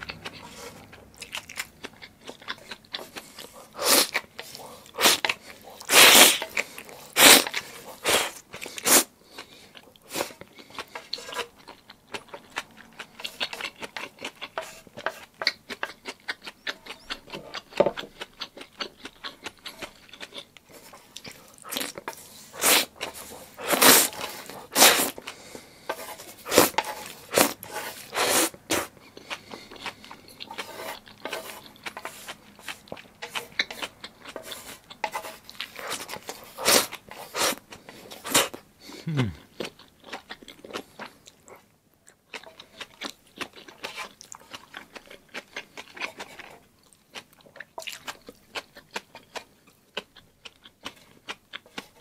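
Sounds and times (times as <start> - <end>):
noodle slurps: 3.8 - 6.5, 7.1 - 9.1, 21.7 - 25.5, 26.1 - 29.7
wet chewing and lip smacks: 8.4 - 22.2, 28.6 - 38.0, 39.4 - 52.0.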